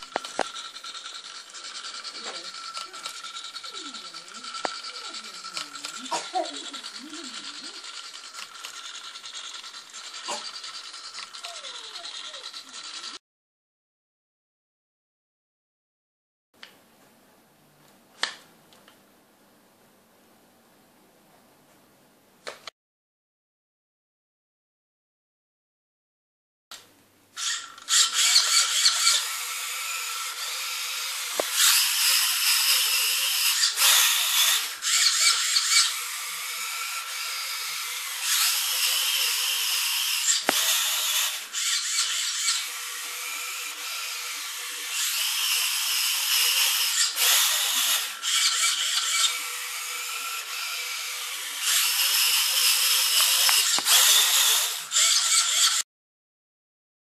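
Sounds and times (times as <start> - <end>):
small motors whirring: 0.0 - 13.2, 27.4 - 55.8.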